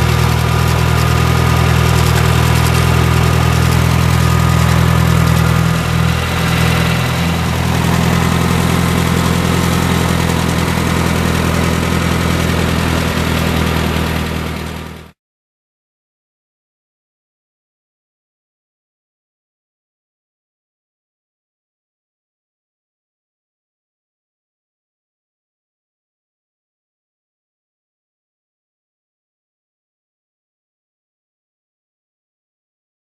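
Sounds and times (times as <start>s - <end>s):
tractor engine idling: 0.0s - 15.1s.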